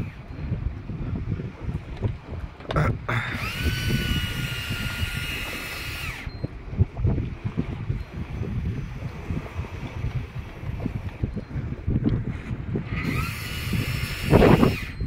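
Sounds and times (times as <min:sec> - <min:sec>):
wind rumbling on microphone: 0:00.0 - 0:15.0
fishing reel drag screaming: 0:03.1 - 0:06.5, 0:12.9 - 0:15.0.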